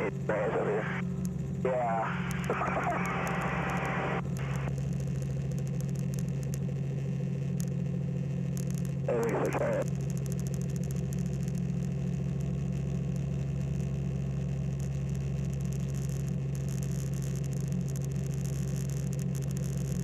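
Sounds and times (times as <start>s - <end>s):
aircraft engine drone: 0.0s - 15.4s.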